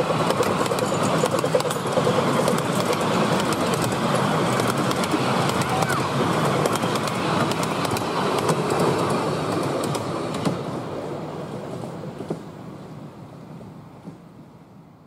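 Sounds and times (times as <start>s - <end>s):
train wheels clicking over rail joints: 0.0s - 10.9s, 11.7s - 12.6s
train rumble: 0.0s - 15.0s.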